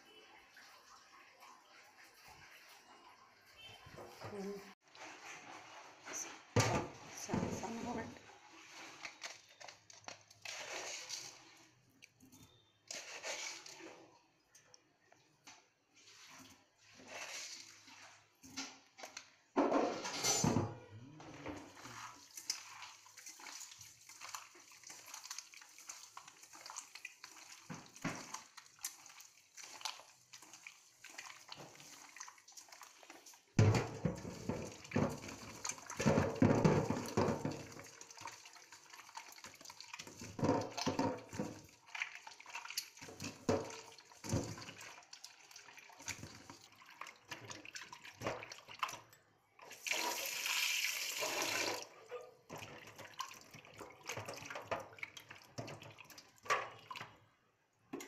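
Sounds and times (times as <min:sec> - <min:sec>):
wet squelching and splashing: 0:21.6 - 0:51.8.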